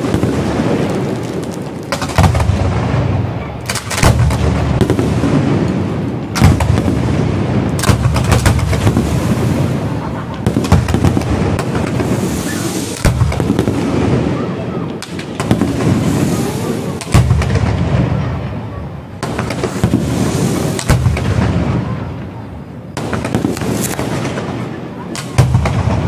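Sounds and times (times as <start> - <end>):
fireworks bangs and crackling: 0.0 - 26.0.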